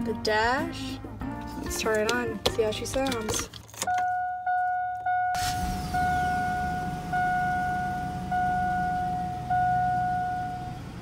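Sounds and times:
dashboard warning chime: 3.8s - 11.0s
pickup engine starting and idling: 5.3s - 11.0s.

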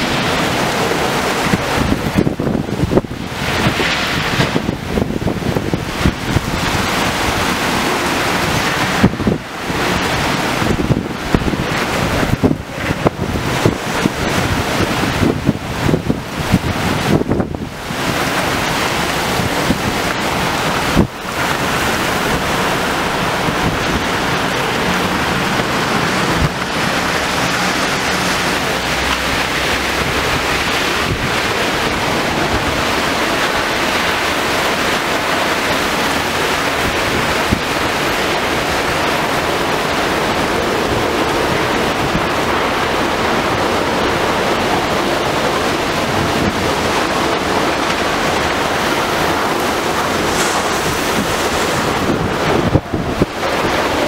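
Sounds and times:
heavy driving rain: 0.0s - 54.0s
storm wind: 0.0s - 54.0s
wind buffeting microphone: 0.0s - 54.0s.

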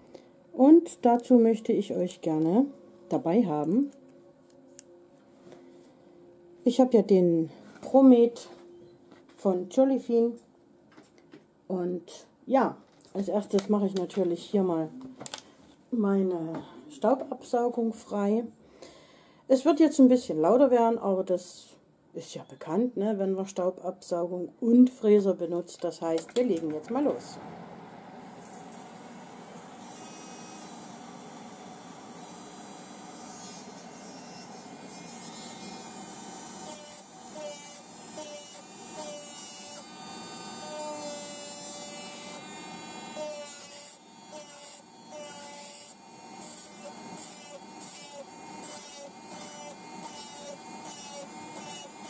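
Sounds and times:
dust extractor fan: 26.8s - 52.0s
electric nail drill whine: 28.4s - 52.0s
drill bit grinding fingernails: 32.3s - 52.0s.

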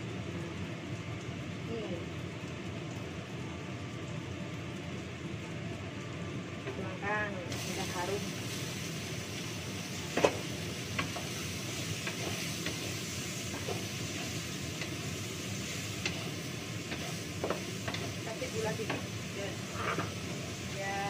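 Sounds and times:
food sizzling in a pan: 0.0s - 21.0s
spatula scraping and knocking pan: 19.7s - 20.3s.

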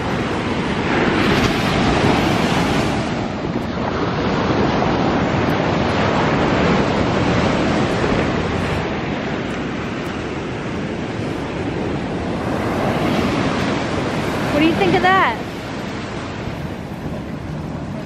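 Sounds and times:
ocean surf breaking: 0.0s - 18.0s
wind rumbling on microphone: 0.0s - 18.0s.

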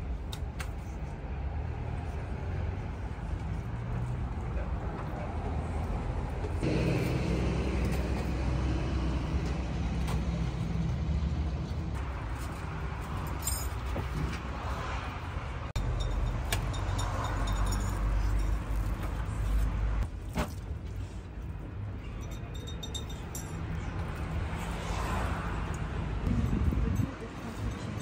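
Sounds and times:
road traffic: 0.0s - 28.0s
vehicle engine humming: 2.3s - 20.2s.

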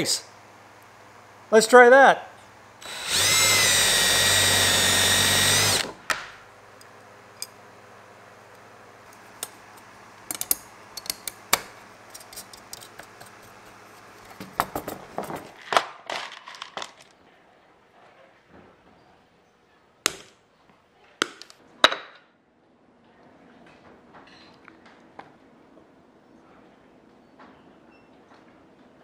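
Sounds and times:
drill whining: 2.8s - 6.0s.

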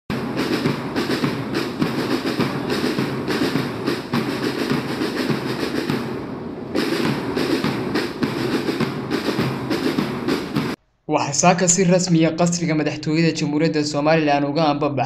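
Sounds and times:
bass drums: 0.1s - 6.2s, 6.8s - 10.8s
snare drums: 0.1s - 10.8s.

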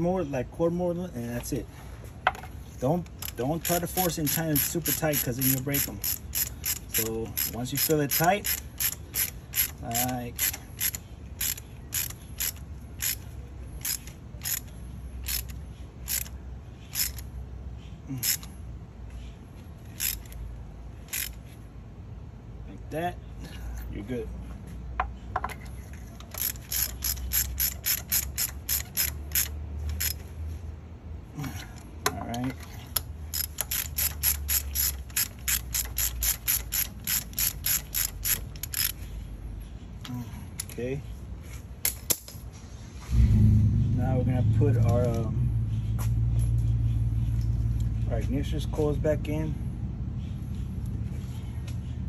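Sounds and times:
hand ratchet clicking: 3.0s - 17.3s, 18.2s - 18.5s, 19.9s - 20.4s, 21.1s - 21.4s, 26.2s - 30.2s, 32.9s - 39.0s.

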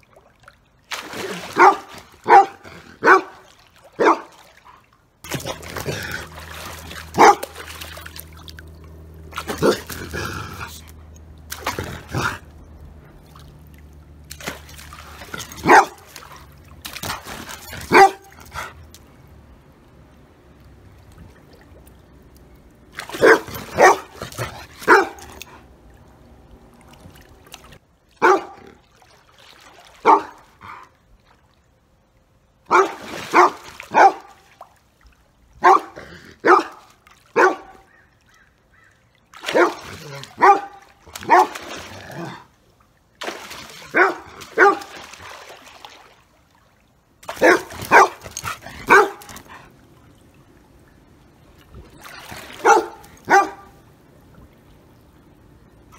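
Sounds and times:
large dog barking: 1.5s - 4.4s, 7.0s - 7.6s, 15.4s - 16.1s, 17.8s - 18.4s, 23.1s - 25.4s, 28.2s - 28.8s, 30.0s - 30.4s, 32.7s - 34.4s, 35.6s - 37.9s, 39.5s - 42.4s, 43.9s - 44.9s, 47.4s - 49.5s, 52.6s - 53.8s.

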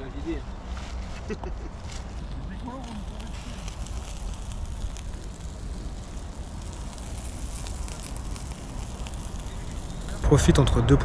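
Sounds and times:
coals crackling: 0.0s - 10.8s
sausages sizzling on a grill: 2.1s - 10.6s.

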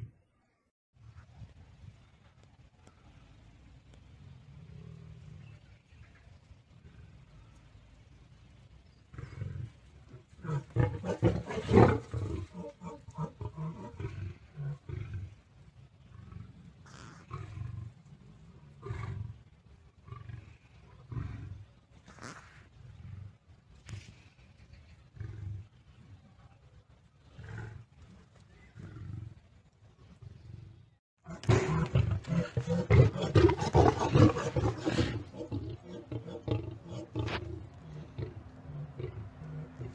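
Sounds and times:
faint low lion grunts: 9.1s - 15.4s, 16.0s - 26.5s, 27.2s - 39.9s
big cats roaring while fighting: 9.2s - 15.4s, 31.3s - 39.9s.

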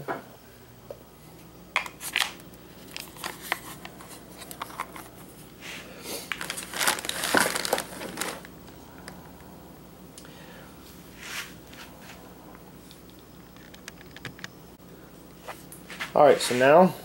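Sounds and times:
plastic packaging crinkling: 2.0s - 5.1s, 6.2s - 9.2s.

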